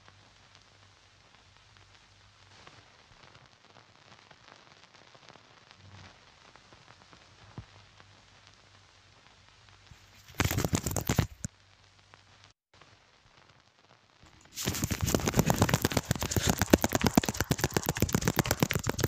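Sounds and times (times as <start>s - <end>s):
film soundtrack hiss and crackle: 0.0s - 19.0s
dense crackling burst: 14.2s - 19.0s.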